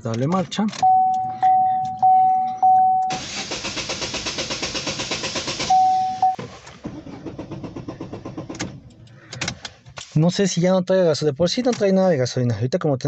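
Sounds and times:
dashboard warning chime: 0.8s - 3.5s, 5.6s - 6.4s
starter cranking engine: 3.1s - 9.5s.

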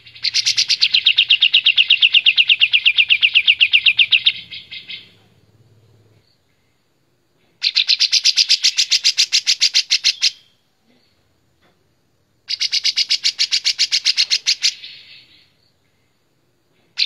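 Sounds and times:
bird chattering song: 0.0s - 5.4s, 7.6s - 11.2s, 12.5s - 15.6s.

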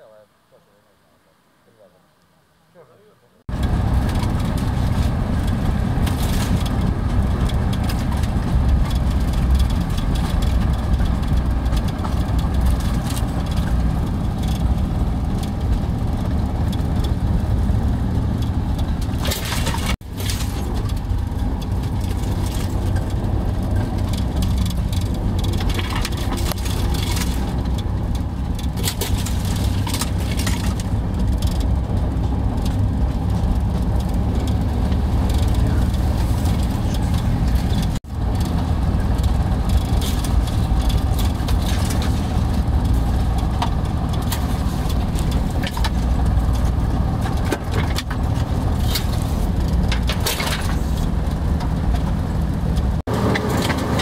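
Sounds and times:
diesel locomotive engine rumble: 3.5s - 54.0s
knocks and rattles: 3.5s - 54.0s.

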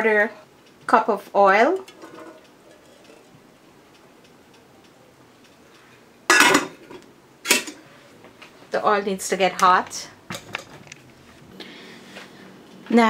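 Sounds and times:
glass lid clattering on metal pot: 6.3s - 7.8s.

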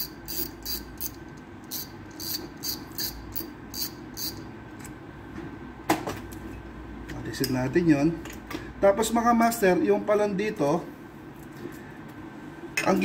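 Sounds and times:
fishing reel clicking: 0.2s - 4.4s.

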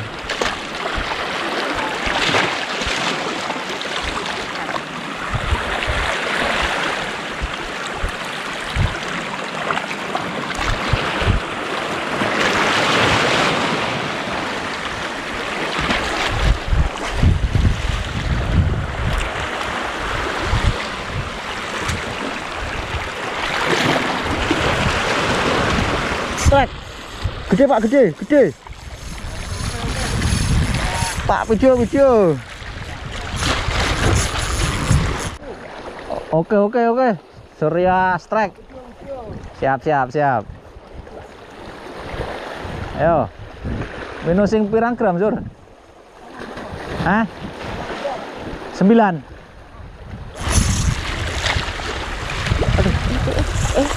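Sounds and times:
waves washing over rocks: 0.0s - 36.1s, 46.2s - 53.9s
wind buffeting microphone: 5.1s - 9.3s, 10.5s - 35.4s, 38.9s - 39.6s, 40.4s - 44.2s, 49.3s - 53.9s.

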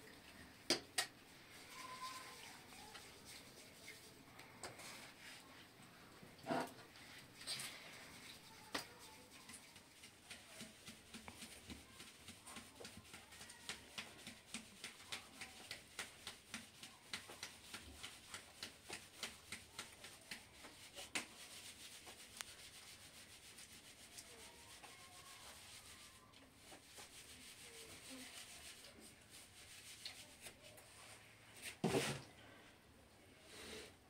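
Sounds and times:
flour sieve rustling: 1.3s - 4.2s.

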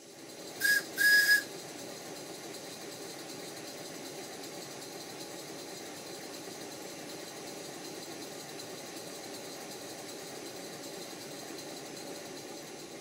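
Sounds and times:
steam locomotive hissing: 0.0s - 13.0s
steam whistle toots: 0.6s - 1.5s.

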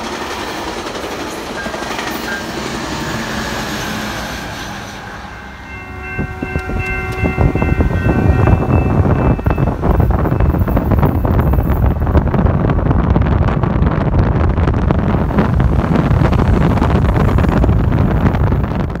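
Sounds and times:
wind buffeting microphone: 0.0s - 19.0s
vehicle rumble: 4.9s - 19.0s.

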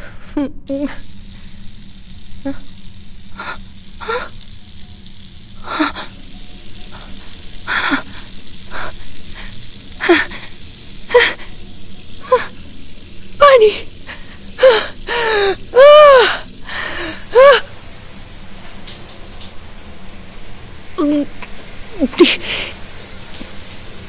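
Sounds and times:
faint steady hiss: 0.0s - 24.0s
woman gasping and exclaiming: 14.6s - 17.7s.

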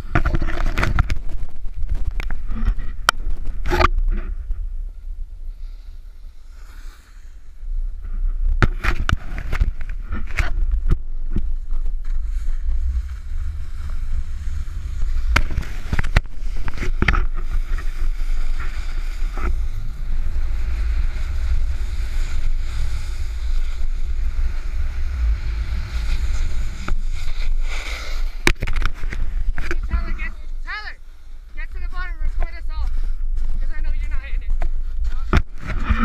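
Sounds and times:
wind rumble on microphone: 0.0s - 6.6s, 7.3s - 36.0s
snowboard scraping over snow: 8.0s - 36.0s.

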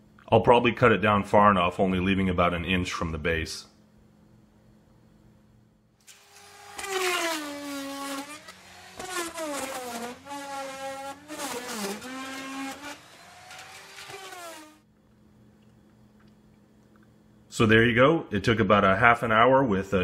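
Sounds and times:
rotary tool whining: 6.0s - 14.8s.

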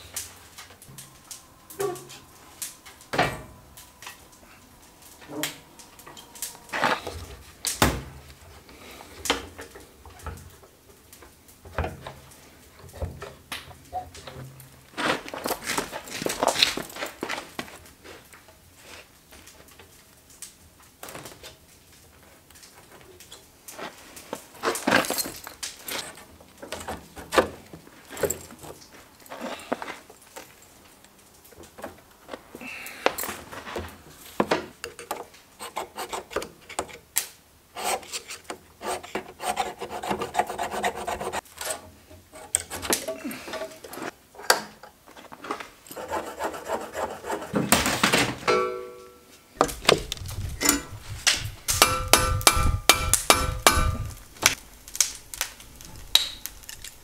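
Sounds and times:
metal scraping against metal: 48.5s - 54.2s.

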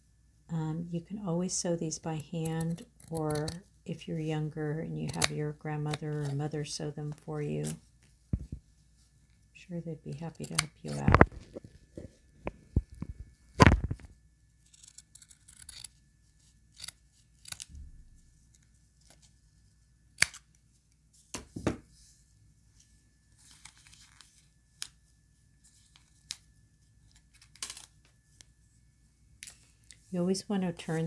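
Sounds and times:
paper rustling: 22.8s - 24.9s.

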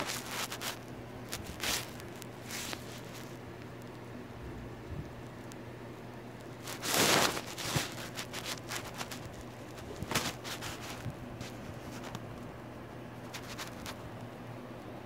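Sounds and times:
bedsheets rustling: 0.0s - 3.4s, 6.6s - 12.2s, 13.2s - 14.0s
low steady hum: 0.0s - 15.0s.

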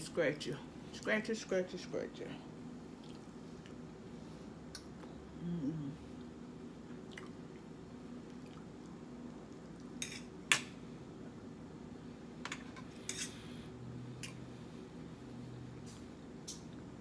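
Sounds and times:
person chewing spaghetti: 3.0s - 3.9s, 6.9s - 10.0s.

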